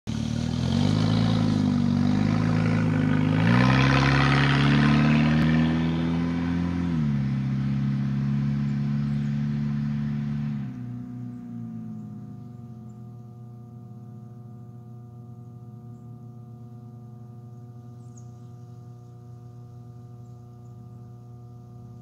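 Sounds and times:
car engine driving past: 0.1 - 13.0.

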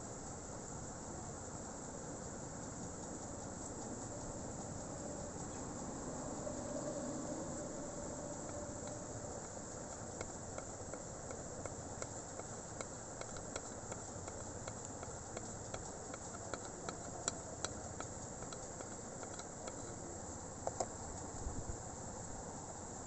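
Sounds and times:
background hiss: 0.0 - 23.0
light ticks and clicks: 8.3 - 21.5.

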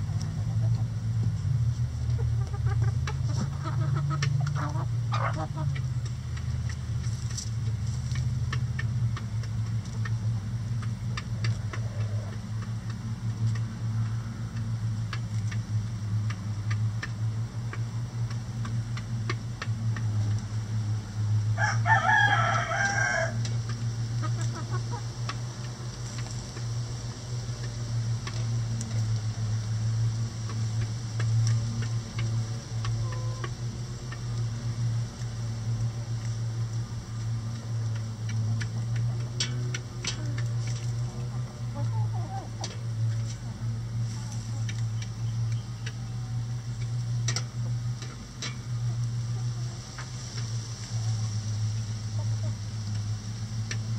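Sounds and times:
beaks pecking cabbage: 0.0 - 53.9
steady low hum: 0.0 - 53.9
rooster crowing: 21.6 - 23.4
chicken call: 33.0 - 33.5.

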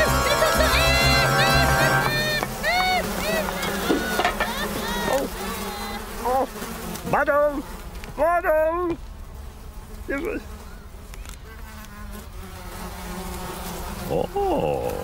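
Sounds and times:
cartoon flies buzzing: 0.0 - 8.0, 9.5 - 15.0
cartoon character grunting: 14.0 - 15.0.

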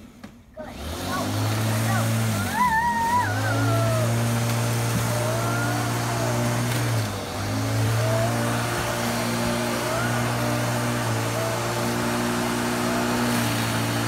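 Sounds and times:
electric lawn mower running: 0.6 - 14.0.

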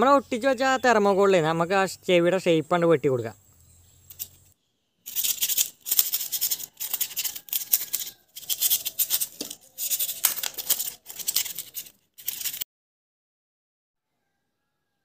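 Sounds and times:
knife sawing through foam: 6.0 - 12.6.

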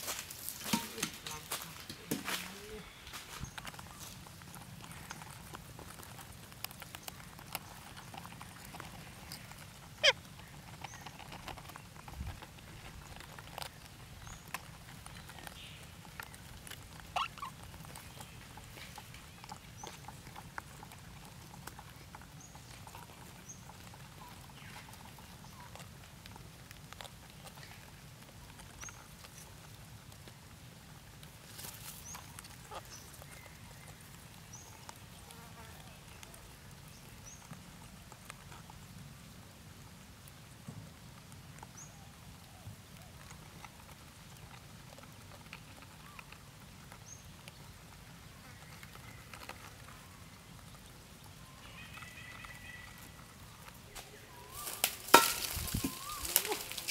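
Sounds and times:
parakeets chirping: 10.0 - 11.1, 17.1 - 17.6.

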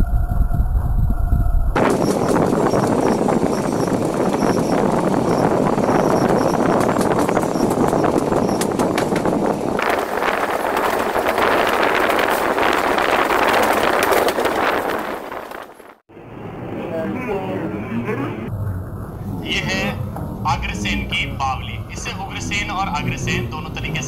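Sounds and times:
rush of air: 0.0 - 16.7
train rumbling on rails: 0.0 - 24.0
wheels clicking over track: 1.8 - 15.9.

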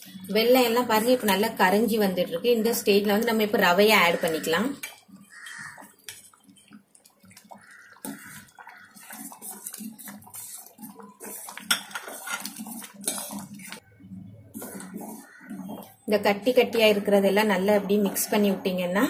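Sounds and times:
ladle scraping a metal pot: 7.6 - 13.8, 14.5 - 16.0.

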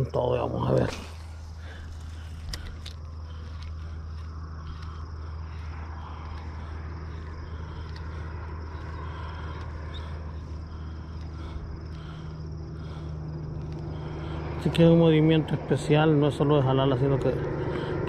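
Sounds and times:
low motor hum: 0.0 - 18.0
faint light ticks: 7.7 - 8.1.

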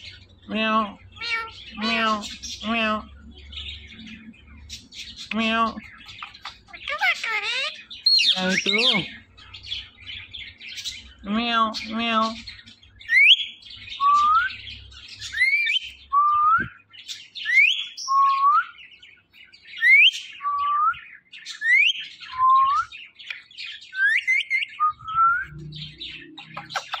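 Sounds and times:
scratchy bird chatter: 1.0 - 11.2, 25.6 - 27.0.

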